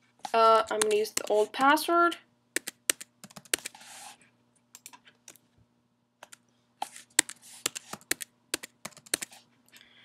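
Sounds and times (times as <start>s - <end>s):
keyboard typing: 2.6s - 3.8s, 4.7s - 5.4s, 6.2s - 9.4s.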